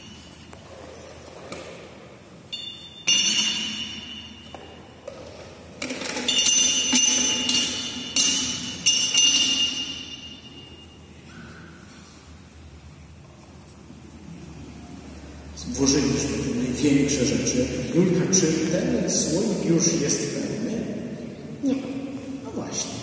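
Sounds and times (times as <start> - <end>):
hard objects clattering into glass: 2.5 - 10.8.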